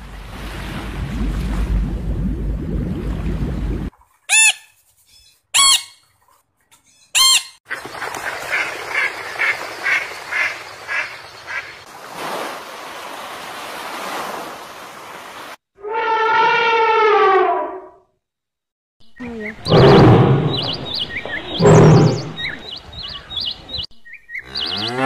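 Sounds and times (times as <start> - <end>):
parrot whistling: 5.6 - 6.0
waves washing on beach: 11.8 - 15.6.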